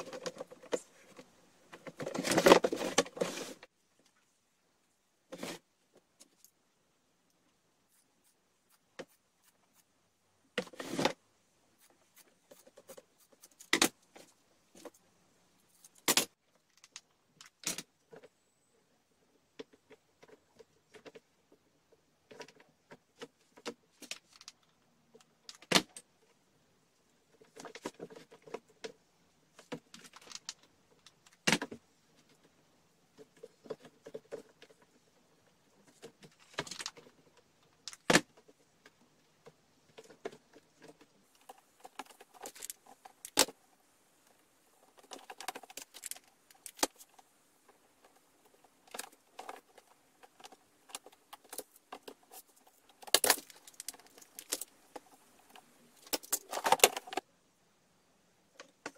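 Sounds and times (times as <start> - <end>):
soft rustling: 0.0 - 4.4.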